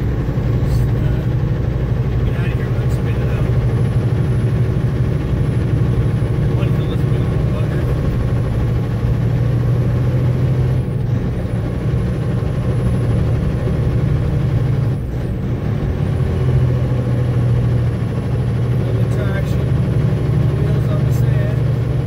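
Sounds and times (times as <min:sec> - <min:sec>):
truck engine droning: 0:00.0 - 0:22.0.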